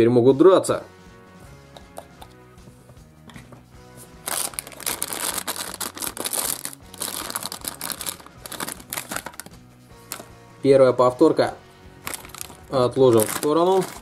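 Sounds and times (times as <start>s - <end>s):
quiet background music: 0.0s - 14.0s
foil packet crinkling: 4.2s - 10.3s, 12.0s - 14.0s.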